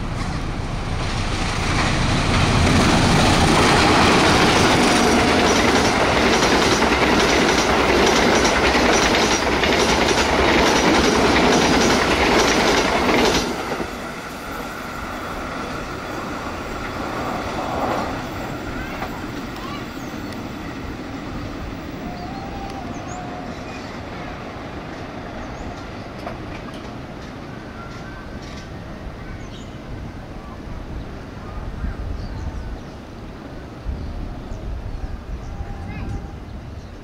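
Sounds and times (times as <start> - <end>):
train passing at speed: 0.0 - 37.0
wheels clacking over rail joints: 0.1 - 21.2, 25.0 - 28.8.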